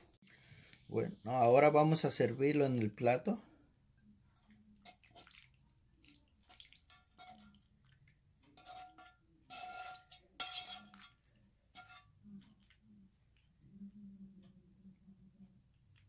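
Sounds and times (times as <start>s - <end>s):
metal tongs scraping a pan: 4.8s - 5.4s, 6.4s - 12.7s.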